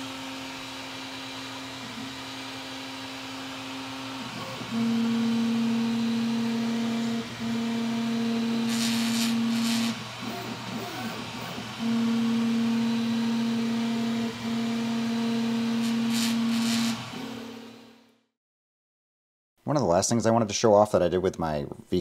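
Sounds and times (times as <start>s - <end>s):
fan hiss: 2.1s - 14.6s, 15.4s - 17.3s
stepper motors singing: 4.2s - 17.6s.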